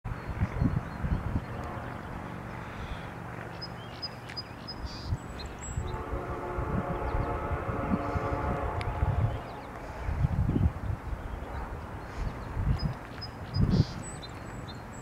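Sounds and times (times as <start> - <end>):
diesel locomotive rumble: 5.2 - 12.8
train air horn chord: 5.8 - 10.1.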